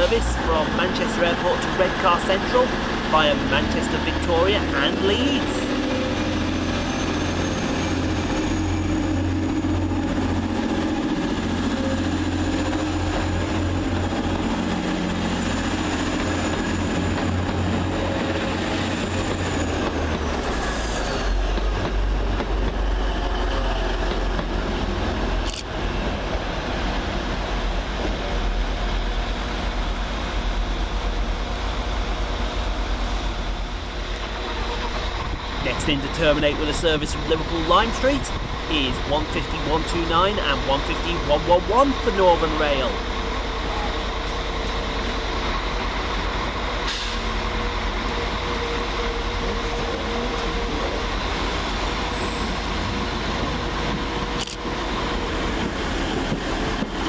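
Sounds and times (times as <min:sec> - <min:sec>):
diesel train engines droning: 0:00.0 - 0:57.0.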